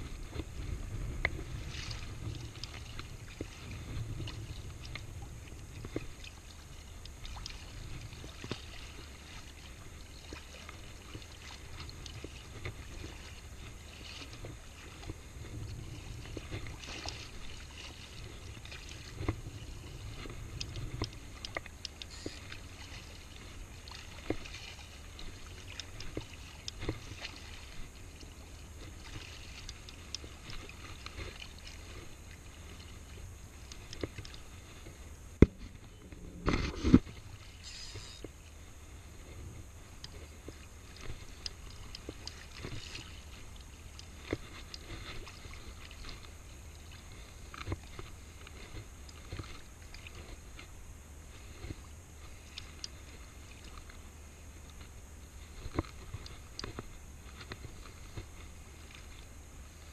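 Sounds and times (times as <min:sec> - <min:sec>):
seawater lapping and sloshing: 0:00.0 - 0:59.9
steady low rumble: 0:00.0 - 0:59.9
light ticks: 0:01.2 - 0:03.6, 0:04.2 - 0:08.7, 0:18.3 - 0:27.5, 0:28.1 - 0:32.0, 0:33.6 - 0:35.6, 0:39.9 - 0:50.7, 0:51.6 - 0:54.0
small splashes: 0:01.4 - 0:38.2, 0:39.9 - 0:50.7.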